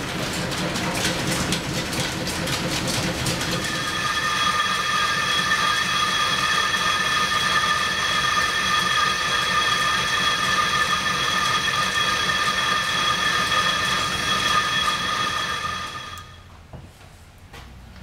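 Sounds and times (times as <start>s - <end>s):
lathe cutting metal high squeal: 3.5s - 16.5s.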